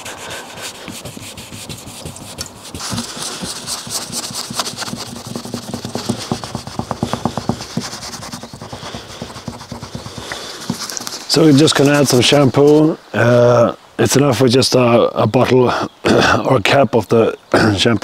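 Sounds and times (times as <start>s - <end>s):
rag rubbing on car paint: 0.0s - 12.8s.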